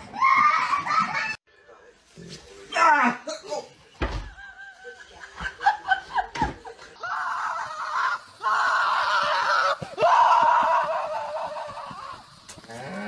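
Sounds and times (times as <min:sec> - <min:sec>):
person screaming: 0:07.0 - 0:12.2.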